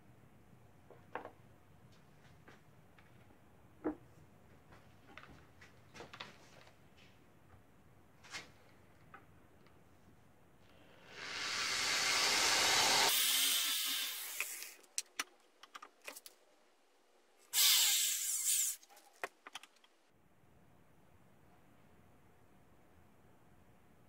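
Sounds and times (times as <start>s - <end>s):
electric drill boring: 11.0s - 14.8s, 17.6s - 18.8s.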